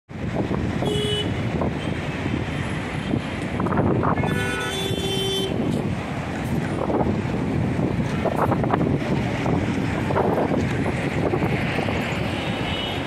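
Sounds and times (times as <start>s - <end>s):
road traffic noise: 0.1s - 13.0s
wind rumbling on microphone: 0.1s - 13.0s
car horns honking: 0.8s - 1.9s, 4.1s - 5.7s.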